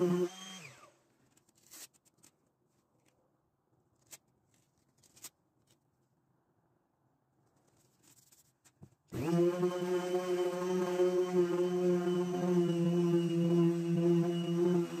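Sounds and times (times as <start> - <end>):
faint clicks and rustles: 1.1 - 6.1, 7.3 - 9.1
orbital sander winding down: 9.2 - 15.0.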